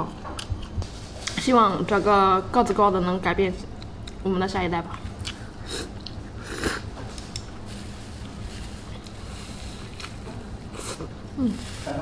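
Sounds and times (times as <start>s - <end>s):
low room hum: 0.0s - 12.0s
person eating noisily: 4.9s - 12.0s.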